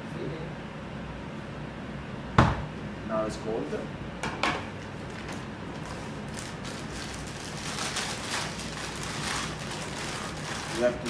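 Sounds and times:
kitchen hum: 2.3s - 11.0s
plastic bag rustling: 4.8s - 11.0s.

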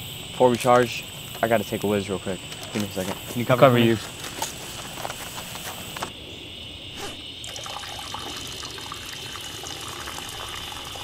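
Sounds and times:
person urinating: 7.4s - 11.0s.

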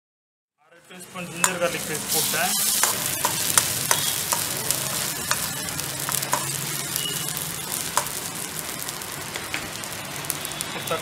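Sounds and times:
onions sizzling in hot oil: 1.2s - 11.0s.

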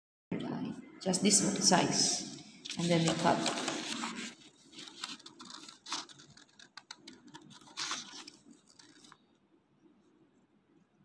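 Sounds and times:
scissors snipping paper: 2.8s - 9.2s.

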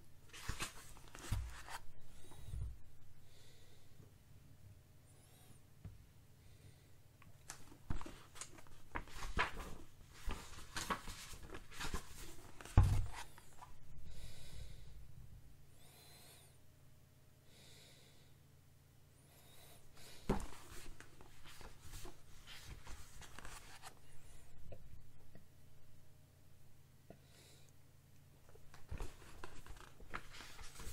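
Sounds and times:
book pages rustling and flapping: 0.3s - 2.7s, 7.4s - 13.8s, 20.2s - 24.0s, 28.5s - 30.9s.

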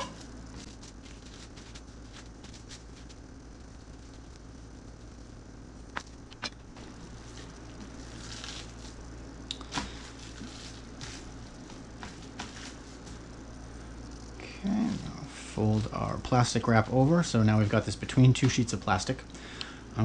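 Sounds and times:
plastic wrap rustling: 0.0s - 3.2s, 6.8s - 13.3s
low steady hum: 0.0s - 20.0s.

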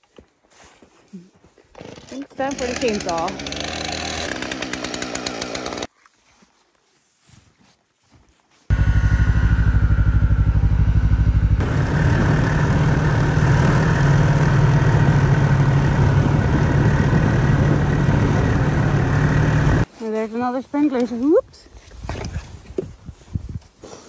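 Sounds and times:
snowmobile engine running: 2.3s - 5.9s, 8.7s - 19.9s.

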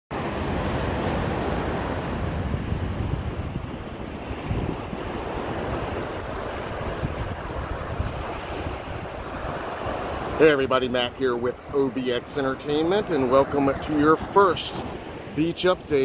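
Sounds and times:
ocean surf on beach: 0.1s - 16.0s
wind rumbling on microphone: 0.2s - 16.0s.

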